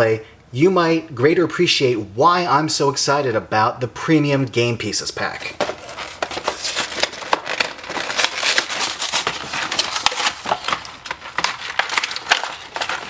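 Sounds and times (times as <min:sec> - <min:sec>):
plastic crinkling: 0:05.2 - 0:13.0
cardboard ripping: 0:05.6 - 0:13.0.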